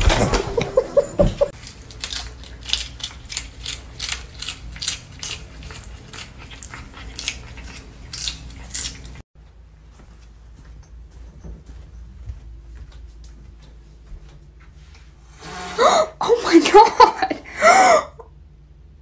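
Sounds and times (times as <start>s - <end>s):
cat crunching lettuce: 1.6s - 9.2s.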